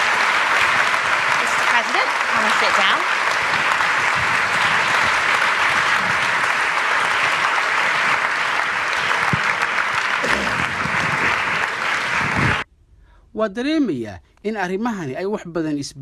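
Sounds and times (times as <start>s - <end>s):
audience applauding: 0.0s - 12.7s.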